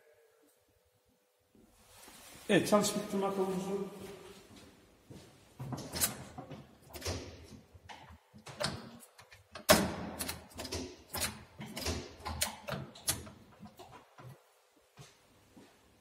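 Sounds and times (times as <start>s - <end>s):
lathe lever linkage clicking and clunking: 5.8s - 14.4s.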